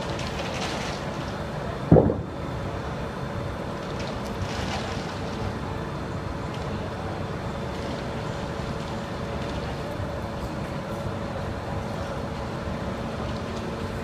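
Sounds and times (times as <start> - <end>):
street rumble: 0.0 - 14.0
wind noise on microphone: 1.9 - 2.6.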